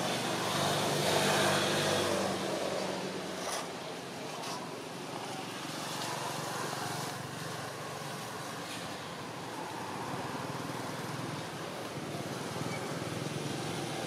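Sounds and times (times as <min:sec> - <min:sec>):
traffic noise: 0:00.0 - 0:14.0.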